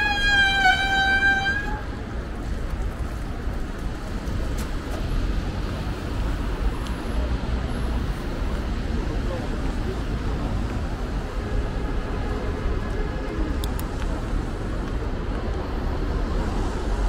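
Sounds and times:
vehicle horn: 0:00.0 - 0:02.0
street traffic rumble: 0:00.0 - 0:17.0.

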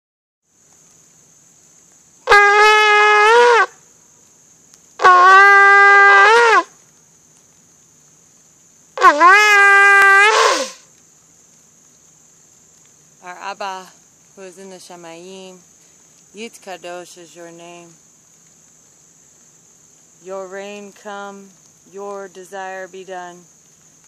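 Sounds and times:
shofar blasts: 0:02.2 - 0:03.8, 0:05.0 - 0:06.7, 0:09.0 - 0:10.8.

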